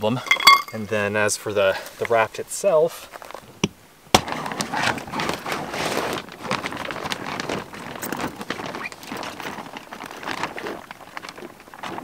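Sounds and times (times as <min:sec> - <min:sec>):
raft fabric rustling and crinkling: 0:02.9 - 0:12.0.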